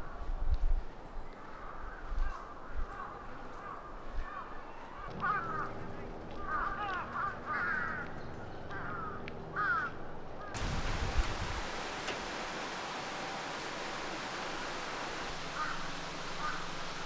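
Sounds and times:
crows cawing: 1.5 - 10.6, 15.3 - 17.0.

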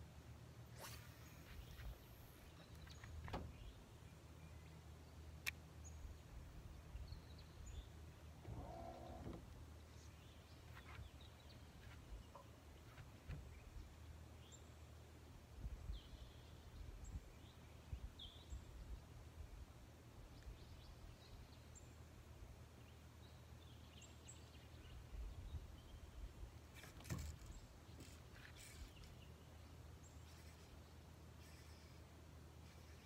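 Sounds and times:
faint bird chirps: 23.3 - 33.0.

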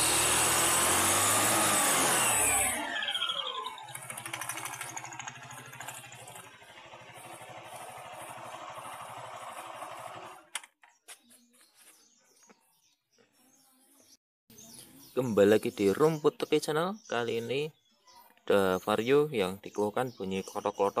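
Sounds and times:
scooter engine idling with ticking: 2.7 - 10.6.

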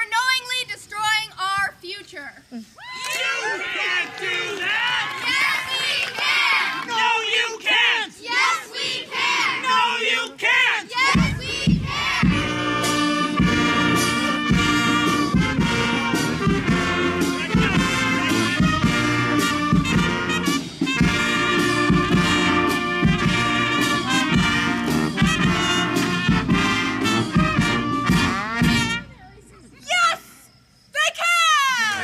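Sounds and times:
brass band playing a lively tune: 11.0 - 29.3.

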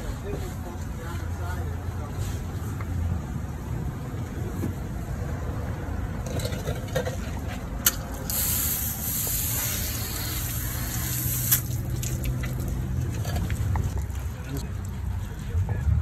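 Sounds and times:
hose nozzle spraying water: 8.2 - 12.7.

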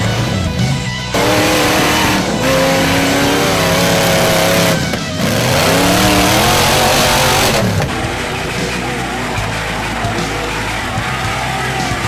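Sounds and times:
buggy engine revving hard: 0.0 - 8.7.

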